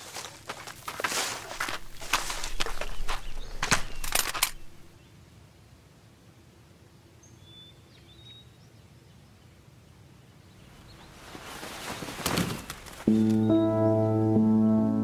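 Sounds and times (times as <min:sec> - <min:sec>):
bird chirps: 0:02.3 - 0:04.8, 0:13.1 - 0:14.1
sharp clicks: 0:03.2 - 0:04.8
cloth rustling: 0:11.0 - 0:13.1
music with sustained chords: 0:13.1 - 0:15.0.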